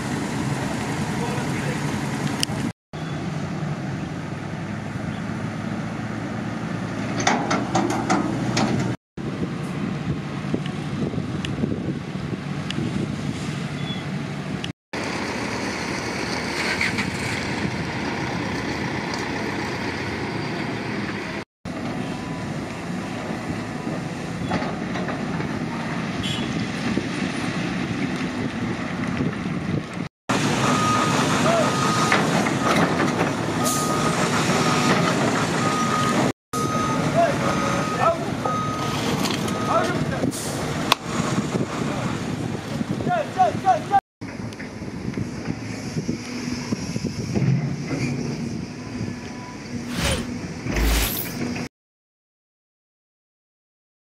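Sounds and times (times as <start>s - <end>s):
metallic clanks and knocks: 7.2s - 9.0s.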